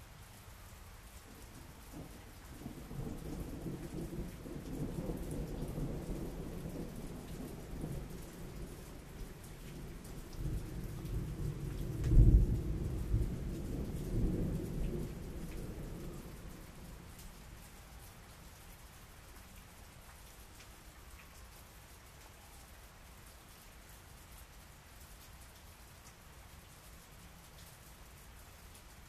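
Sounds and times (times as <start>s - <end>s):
steady rain: 0.0s - 29.0s
thunder rumbling: 1.7s - 17.1s.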